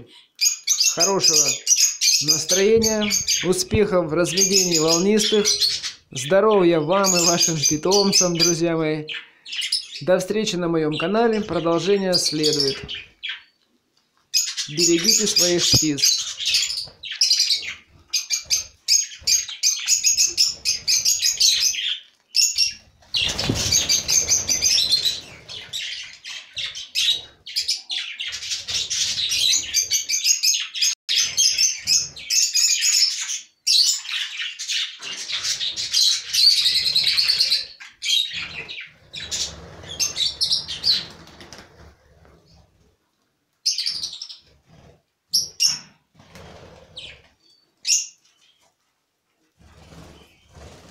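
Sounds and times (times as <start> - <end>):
budgerigars chattering: 0.4 - 10.1, 14.4 - 41.2
bird wingbeats: 23.0 - 25.7.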